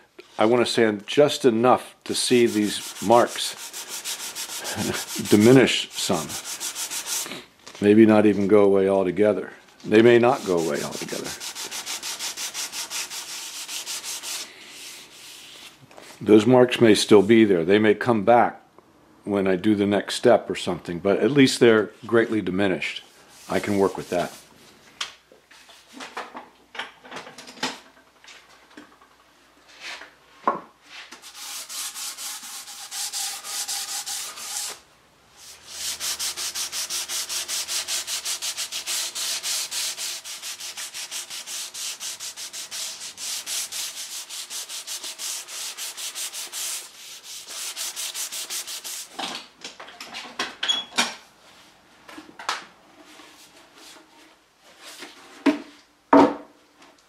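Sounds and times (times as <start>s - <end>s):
sandpaper rasping on wood: 2.2s - 7.4s, 10.2s - 15.8s, 23.3s - 24.5s, 31.2s - 34.8s, 35.4s - 49.2s
knocks of wooden tabletop: 56.1s - 56.5s.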